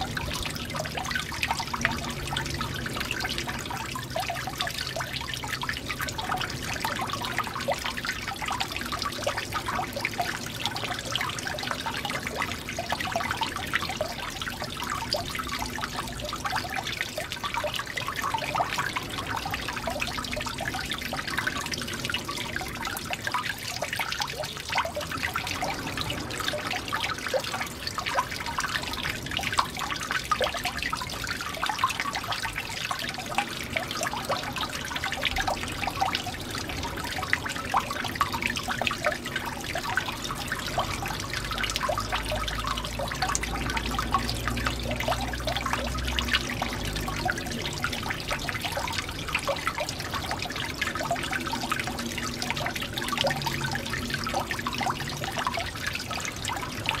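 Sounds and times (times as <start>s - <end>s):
water dripping from pipe: 0.0s - 57.0s.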